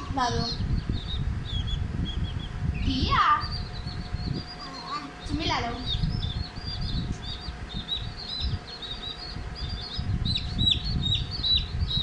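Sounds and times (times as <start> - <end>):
baby chicks peeping: 0.0 - 12.0.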